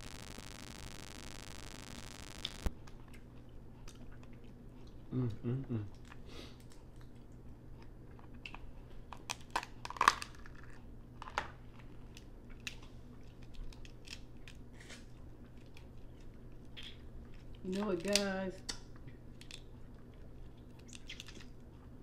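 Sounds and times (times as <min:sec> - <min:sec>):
chewing: 0:02.4 - 0:22.0
crab shells cracking: 0:08.3 - 0:19.9, 0:20.5 - 0:21.7.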